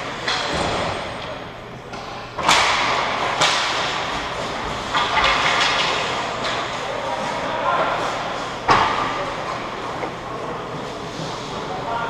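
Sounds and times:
hockey sticks and puck knocking: 0:01.9 - 0:11.3.

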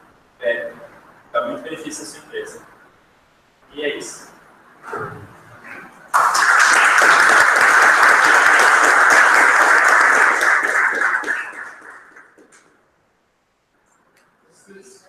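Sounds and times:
audience applauding: 0:06.1 - 0:12.7.

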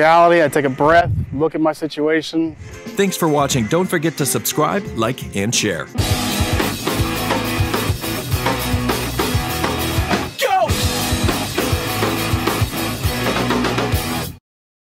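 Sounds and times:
rock music with drums and guitar: 0:05.9 - 0:14.4.

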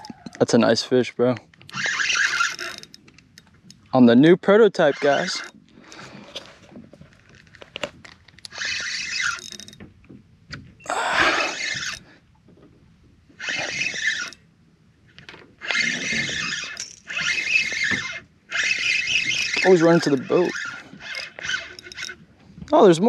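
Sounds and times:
fishing reel drag giving line: 0:01.7 - 0:03.8, 0:04.7 - 0:06.5, 0:08.5 - 0:09.8, 0:11.1 - 0:12.2, 0:13.4 - 0:14.4, 0:15.6 - 0:22.2.

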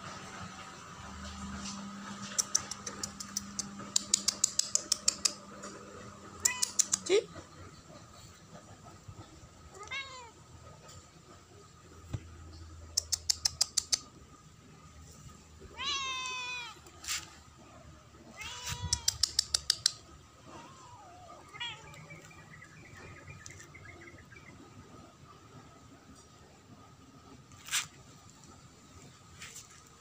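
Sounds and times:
rapid sharp clicks: 0:02.4 - 0:05.4
kittens meowing: 0:06.4 - 0:07.4, 0:09.7 - 0:10.5, 0:15.6 - 0:17.4, 0:18.2 - 0:22.4.

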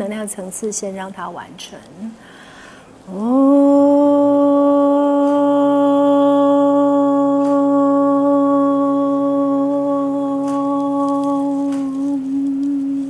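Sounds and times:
person chanting: 0:03.1 - 0:13.0.

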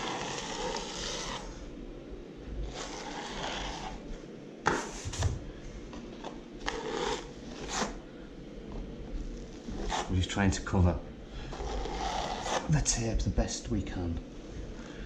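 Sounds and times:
blade scraping filler on ceiling: 0:00.0 - 0:01.6, 0:02.6 - 0:04.1, 0:06.6 - 0:08.0, 0:11.4 - 0:12.7.

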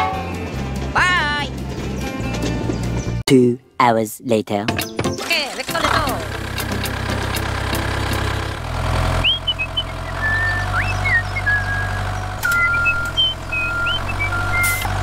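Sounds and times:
tractor engine drone: 0:05.2 - 0:15.0.

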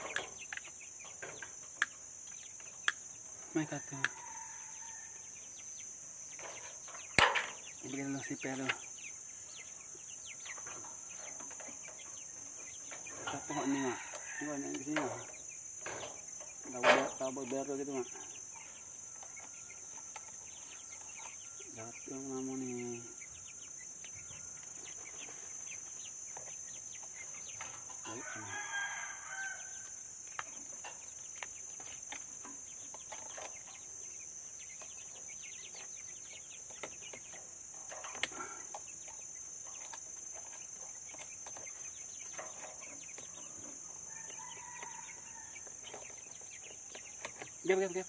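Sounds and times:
insect drone: 0:00.0 - 0:48.0
rooster crowing: 0:03.8 - 0:05.3, 0:13.2 - 0:14.8, 0:28.0 - 0:30.0, 0:44.0 - 0:45.7.

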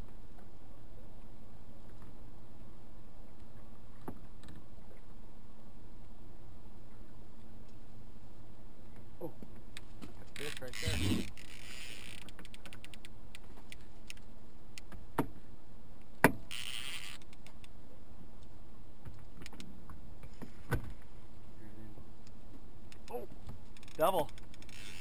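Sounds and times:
fishing reel drag clicking: 0:10.4 - 0:13.1, 0:16.5 - 0:17.7, 0:23.8 - 0:25.0.

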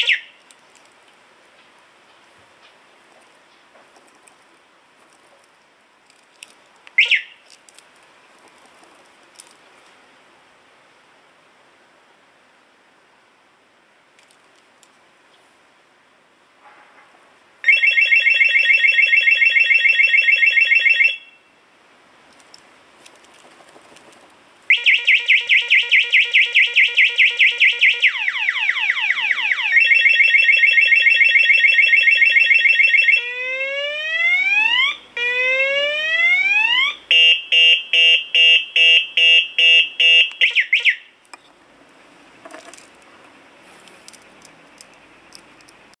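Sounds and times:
motorcycle alarm siren cycling tones: 0:00.0 - 0:00.3, 0:17.6 - 0:21.4, 0:24.7 - 0:41.1.

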